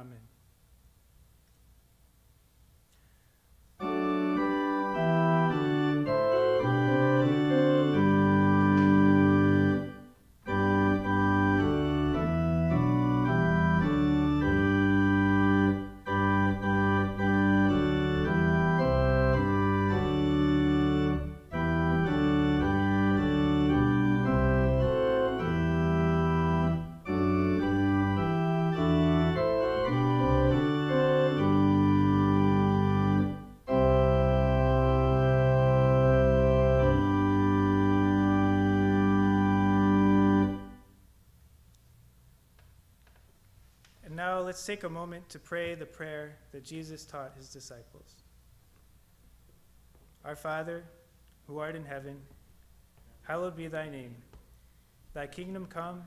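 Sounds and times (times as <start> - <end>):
church organ chords: 3.8 - 41.0.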